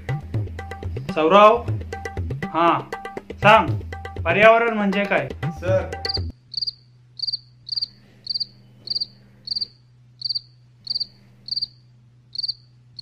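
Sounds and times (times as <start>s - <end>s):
cricket chirping: 6.0s - 13.0s.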